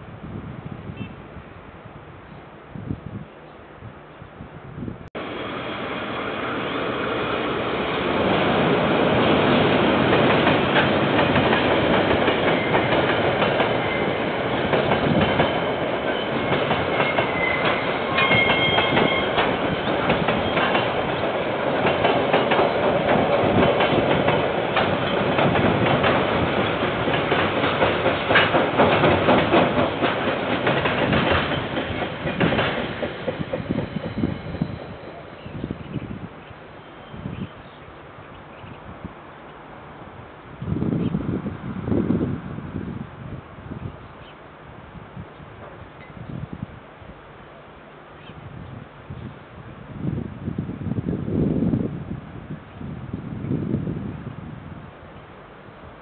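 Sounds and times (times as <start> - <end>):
diesel locomotive passing: 5.1 - 38.5
wheels clattering over rail joints: 7.8 - 34.2
high squeal: 16.2 - 19.4, 33.7 - 35.4.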